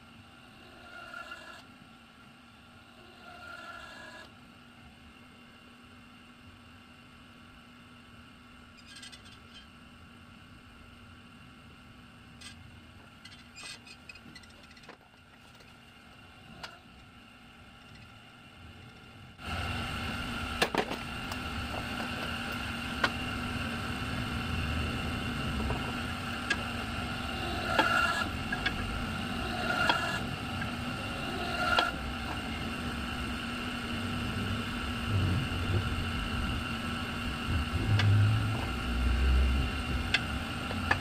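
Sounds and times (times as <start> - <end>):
electric motor humming: 19.4 - 41.0.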